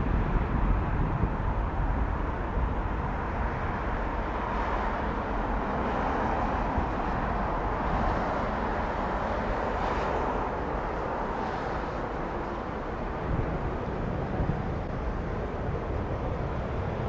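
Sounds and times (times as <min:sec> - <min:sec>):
distant jet engines taxiing: 0:00.0 - 0:17.0.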